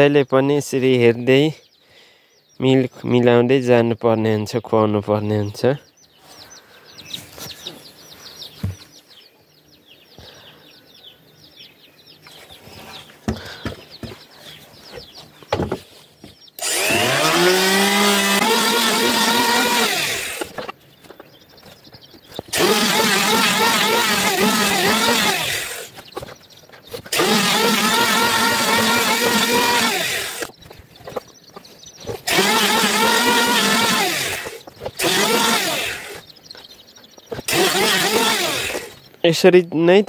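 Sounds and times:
electric hand planer motor whine: 16.6s - 20.7s, 22.5s - 25.9s, 27.1s - 30.5s, 32.2s - 36.2s, 37.5s - 39.0s.

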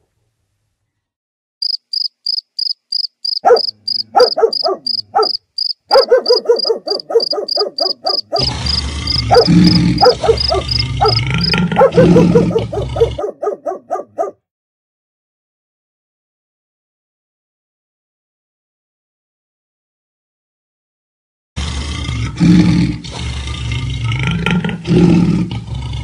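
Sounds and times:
crickets chirping: 1.6s - 13.2s
dogs barking and yelping: 3.4s - 14.4s.

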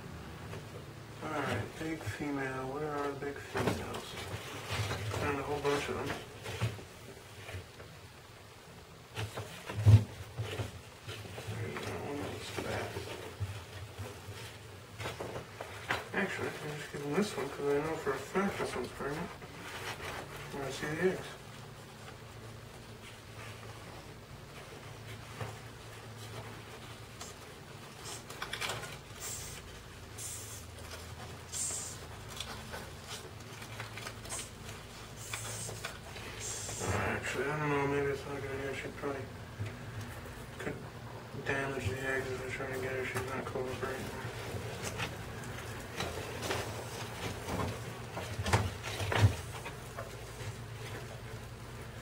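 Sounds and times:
cardboard rustling and scraping: 9.0s - 37.9s, 42.2s - 52.0s.

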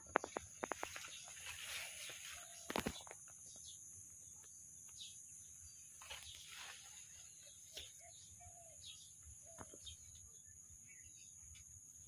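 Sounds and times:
bird chirps: 0.0s - 12.0s
leaves rustling: 0.2s - 3.3s, 5.8s - 8.2s.

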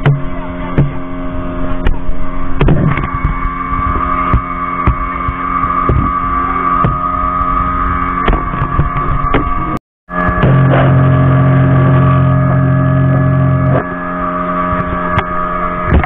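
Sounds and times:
speedboat engine droning: 0.0s - 16.0s
sharp knocks: 4.3s - 6.2s.

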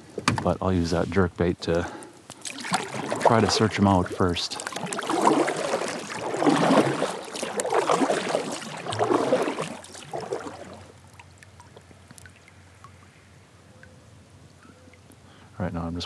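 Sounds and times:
faint water lapping: 0.8s - 15.5s
paddle strokes swishing through water: 2.3s - 12.5s.

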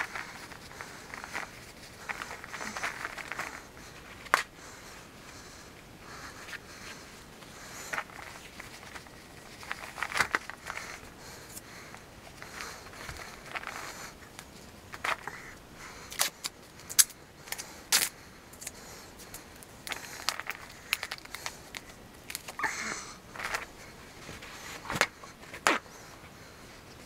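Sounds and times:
paper rustling: 0.0s - 4.5s, 7.6s - 15.4s, 23.3s - 25.9s
plastic bag crackling: 0.0s - 4.5s, 19.8s - 22.7s.

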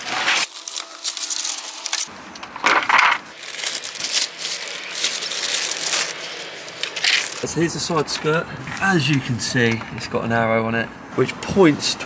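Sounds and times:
plastic wrap crinkling: 0.0s - 2.1s, 2.7s - 7.7s.

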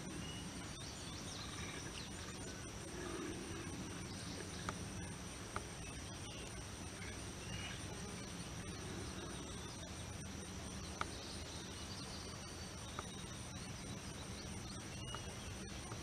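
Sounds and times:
faint bird chirps: 0.0s - 16.0s
insects trilling: 0.0s - 16.0s.

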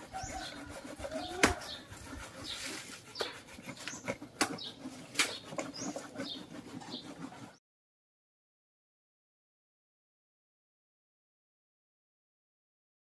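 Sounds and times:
cassava rasping on metal grater: 0.0s - 7.6s
sharp scrapes and knocks: 0.0s - 7.6s.

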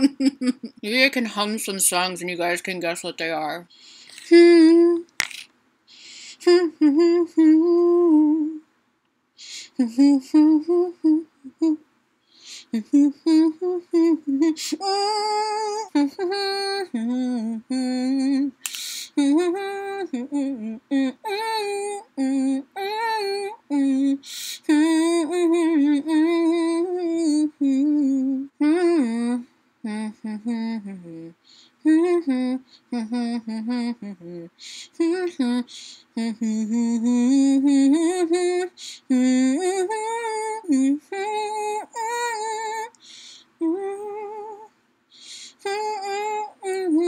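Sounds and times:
woman humming a melody: 4.2s - 5.1s, 6.4s - 8.6s, 9.6s - 11.8s, 12.8s - 18.6s, 19.2s - 43.0s, 43.6s - 44.7s, 45.6s - 47.0s.

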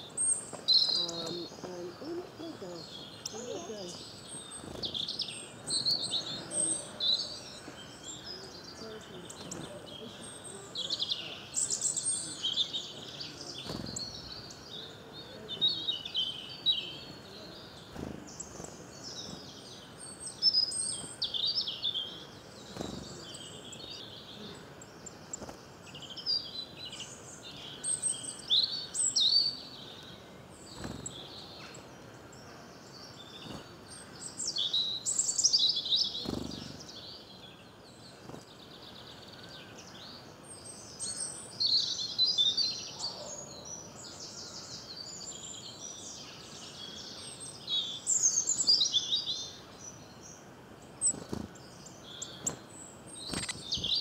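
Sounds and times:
songbirds trilling: 0.0s - 54.0s.

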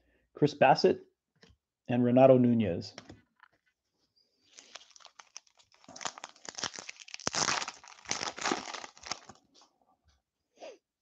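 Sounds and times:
wrapper tearing and crinkling: 4.5s - 9.4s.

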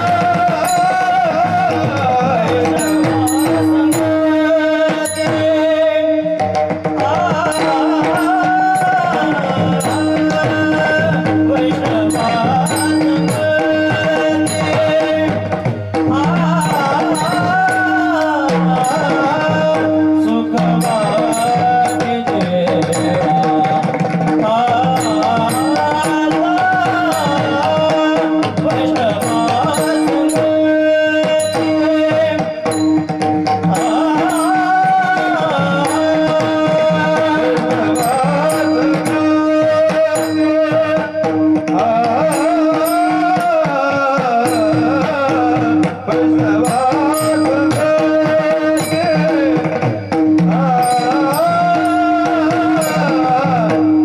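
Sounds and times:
hand drum: 0.0s - 54.0s
man singing a melismatic melody: 0.0s - 54.0s
small hand cymbals striking: 0.3s - 6.0s, 7.2s - 54.0s.

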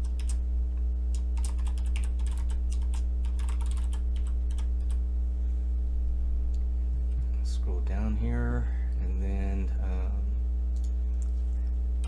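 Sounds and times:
computer keyboard typing: 0.0s - 0.4s, 1.2s - 5.0s
low electrical hum: 0.0s - 12.0s.

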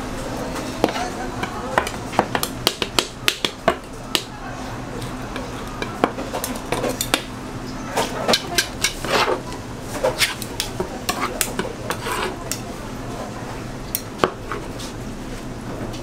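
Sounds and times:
spatula scraping cutting board: 8.5s - 12.4s.

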